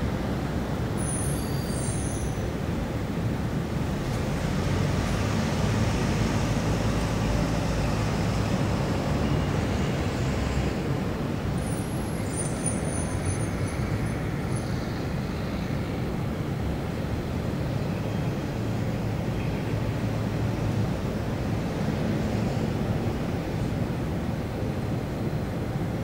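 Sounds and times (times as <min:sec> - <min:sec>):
road traffic rumble: 0:00.0 - 0:26.0.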